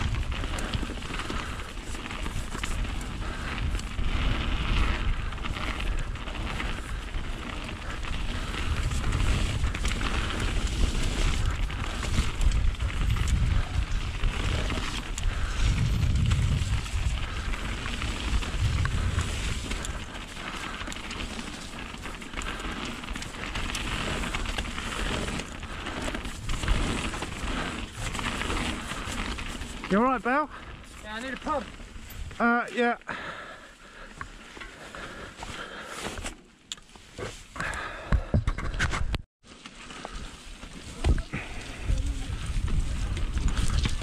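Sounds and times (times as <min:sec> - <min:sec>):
wind rumble on microphone: 0:00.0 - 0:29.6, 0:40.8 - 0:44.0
bike tyre noise: 0:00.0 - 0:44.0.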